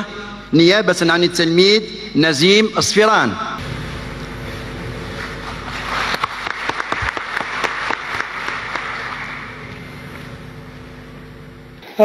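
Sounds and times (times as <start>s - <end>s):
audience applauding: 5.1s - 9.8s.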